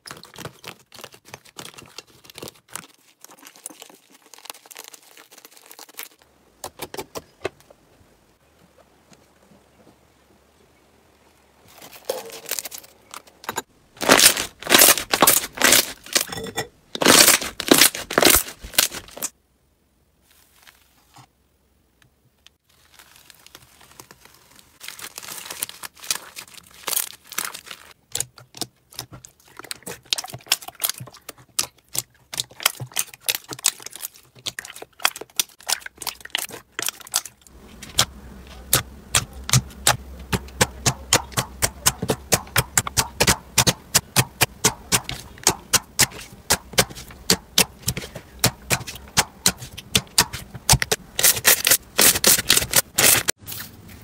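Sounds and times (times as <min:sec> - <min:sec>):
slime squelching: 0:00.0 - 0:06.2, 0:14.0 - 0:19.3, 0:22.7 - 0:53.8
paper crinkling in slime: 0:00.0 - 0:06.3, 0:11.7 - 0:13.4, 0:14.0 - 0:16.3, 0:17.0 - 0:19.3, 0:20.2 - 0:21.3, 0:22.6 - 0:38.0, 0:46.0 - 0:54.0.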